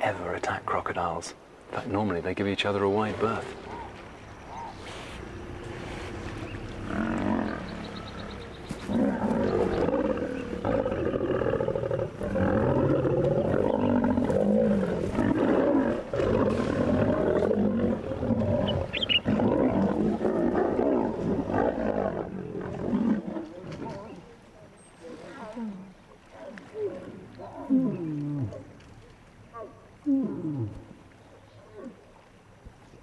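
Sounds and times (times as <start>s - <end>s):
lions roaring: 6.8s - 24.1s.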